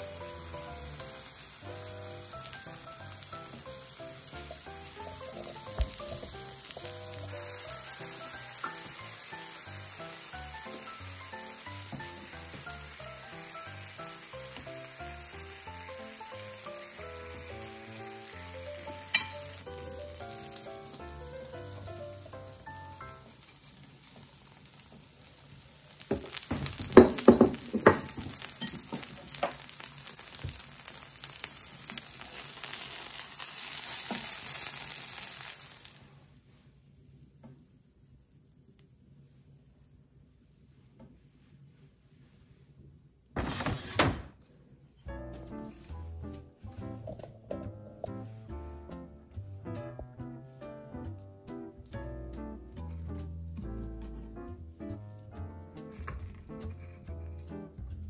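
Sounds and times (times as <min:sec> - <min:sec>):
food sizzling on a griddle: 0:00.0 - 0:36.7
sharp knocks and scraping: 0:43.4 - 0:44.3.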